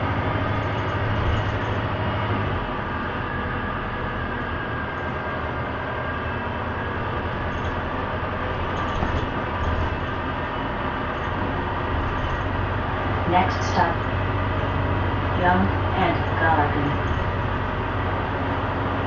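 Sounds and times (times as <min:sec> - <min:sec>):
bus engine drone: 0:00.0 - 0:19.0
road noise: 0:00.0 - 0:19.0.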